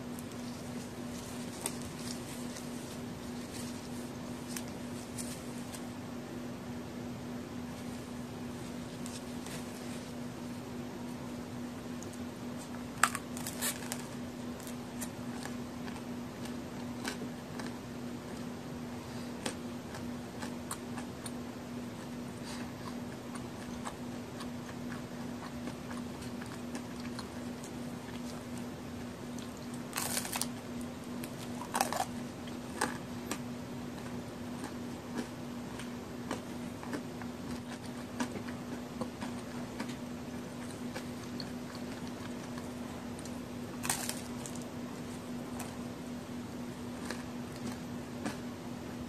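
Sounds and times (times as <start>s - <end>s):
soft chewing: 0.0s - 6.0s, 7.6s - 48.6s
steady low hum: 0.0s - 49.0s
cookie crunching bites: 29.3s - 44.7s.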